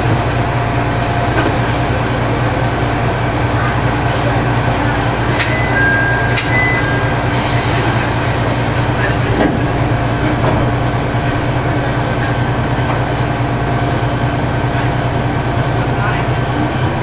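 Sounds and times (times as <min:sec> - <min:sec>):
diesel engine idling: 0:00.0 - 0:17.0
short high tones: 0:05.4 - 0:09.3.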